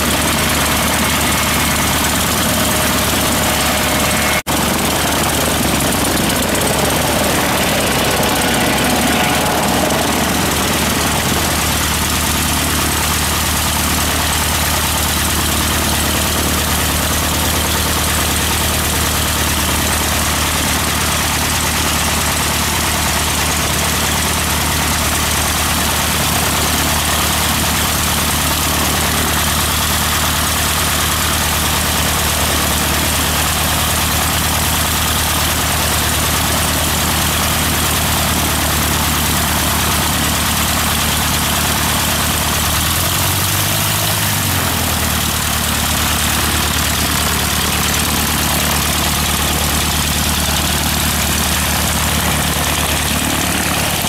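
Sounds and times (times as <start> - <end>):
plane engine idling: 0.0 - 54.0.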